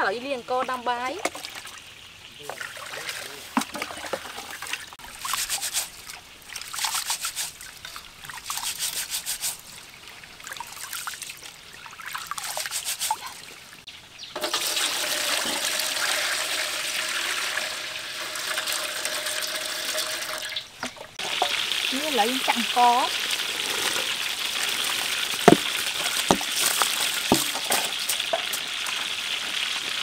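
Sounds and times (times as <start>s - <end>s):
rice swishing in water: 5.0s - 9.8s, 12.1s - 13.4s
water pouring into steel bowl: 14.4s - 20.6s.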